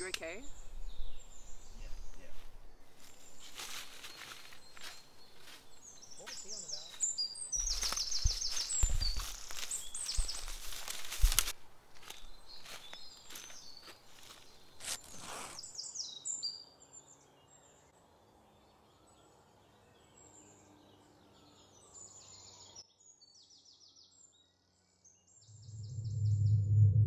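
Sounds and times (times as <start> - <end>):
small birds chirping: 0.0 - 26.6
footsteps in dry leaves: 1.9 - 15.7
low droning music: 25.5 - 27.0.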